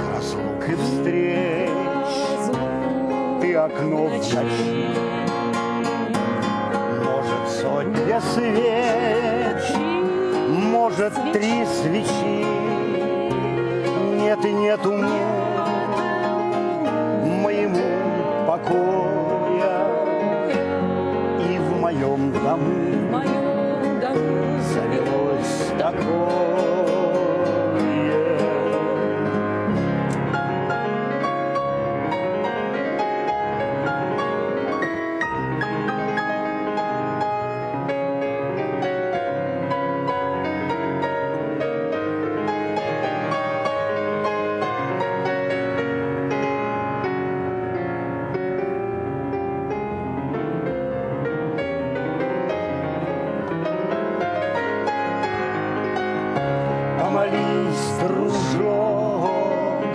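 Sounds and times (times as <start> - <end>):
person singing: 0.0 - 30.4, 56.4 - 59.9
acoustic guitar: 0.0 - 59.9
digital piano: 0.0 - 59.9.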